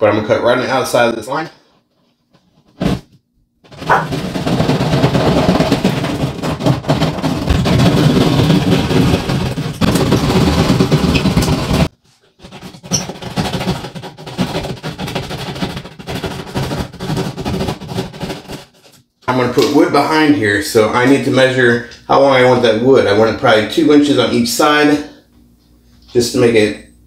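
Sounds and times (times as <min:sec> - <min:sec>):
hand saw rasping through drywall: 0:09.2 - 0:18.9.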